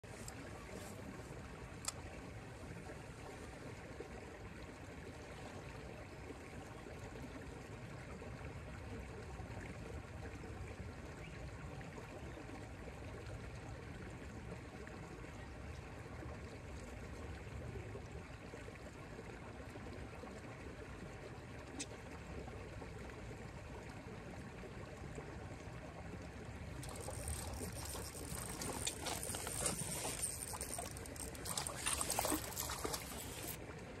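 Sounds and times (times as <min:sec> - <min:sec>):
water trickling: 0:00.1 - 0:34.0
water splashing: 0:26.6 - 0:33.6.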